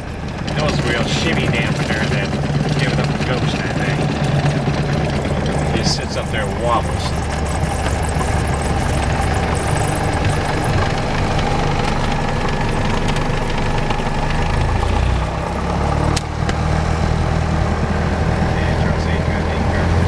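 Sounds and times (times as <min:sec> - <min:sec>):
airplane engine idling: 0:00.0 - 0:20.0
sharp click: 0:16.1 - 0:16.6.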